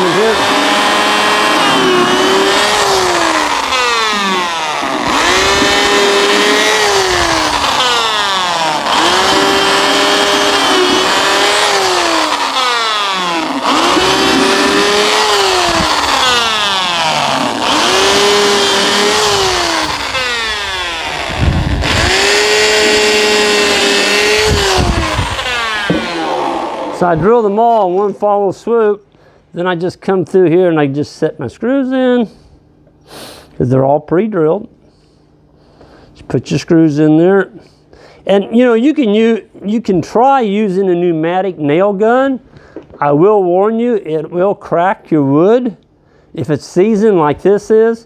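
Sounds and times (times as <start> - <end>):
electric drill boring into wood: 0.0 - 28.0.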